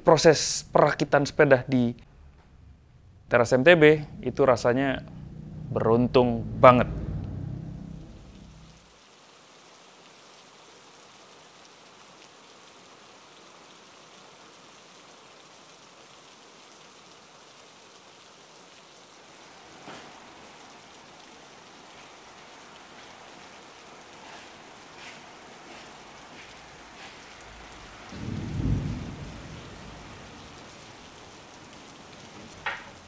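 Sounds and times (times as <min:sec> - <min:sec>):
rain hiss: 0:00.0 - 0:33.0
low rumble: 0:02.0 - 0:08.9.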